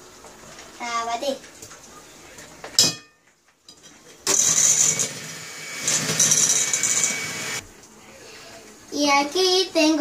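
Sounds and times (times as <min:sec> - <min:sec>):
electric hand mixer whirring: 0:04.3 - 0:07.6.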